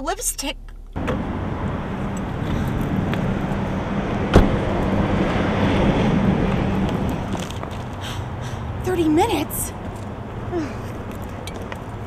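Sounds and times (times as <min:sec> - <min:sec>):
car interior hum: 0:00.0 - 0:12.0
car door shutting: 0:00.8 - 0:01.4, 0:04.3 - 0:04.7.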